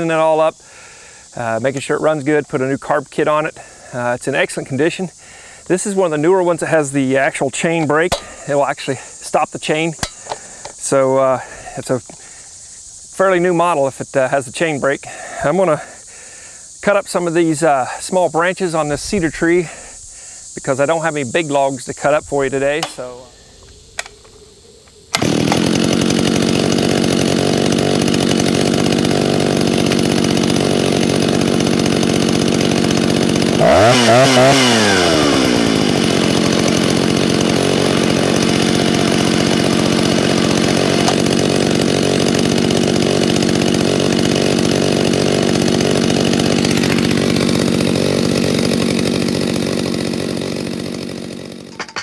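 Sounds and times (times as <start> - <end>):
chainsaw idling: 0.0 - 12.8, 22.4 - 23.4, 25.1 - 52.0
chainsaw revving: 7.8 - 9.2, 10.0 - 11.7, 25.1 - 52.0.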